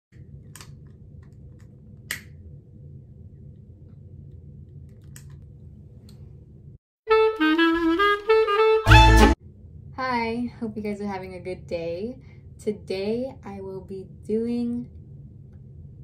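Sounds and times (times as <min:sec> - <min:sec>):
low steady hum: 0:00.2 - 0:06.8, 0:09.3 - 0:16.0
music: 0:07.1 - 0:09.4.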